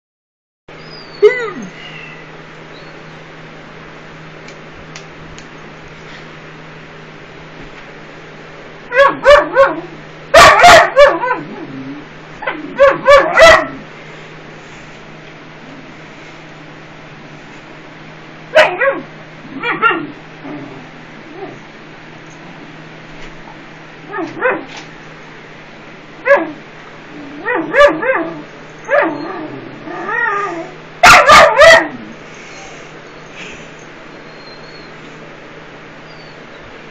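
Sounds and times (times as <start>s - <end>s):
dog whining: 0.8s - 3.0s, 18.6s - 21.6s, 24.1s - 24.7s, 27.2s - 35.1s, 36.0s - 36.6s
small dog barking: 8.9s - 11.5s, 12.4s - 13.8s, 18.5s - 20.1s, 24.1s - 24.7s, 26.2s - 26.6s, 27.4s - 29.2s, 31.0s - 32.1s.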